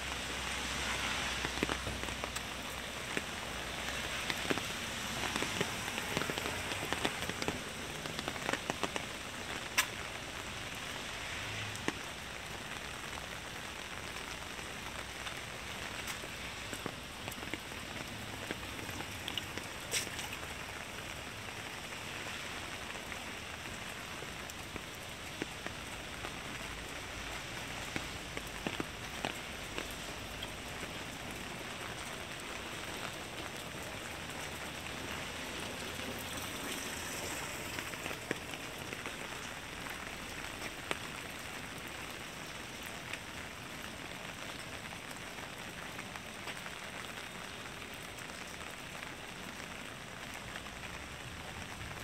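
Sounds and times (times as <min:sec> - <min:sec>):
rain on wet pavement: 0:00.0 - 0:52.0.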